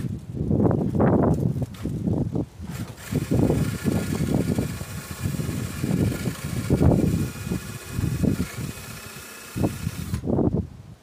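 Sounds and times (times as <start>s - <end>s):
wind buffeting microphone: 0.0s - 11.0s
power drill boring into wood: 2.6s - 10.3s.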